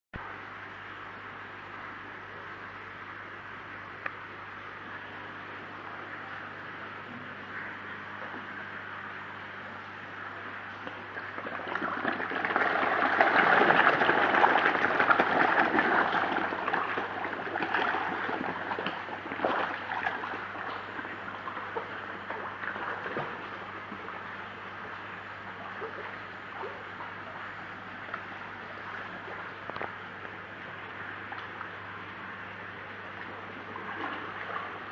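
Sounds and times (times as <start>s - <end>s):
fish splashing and slurping: 10.4s - 34.9s.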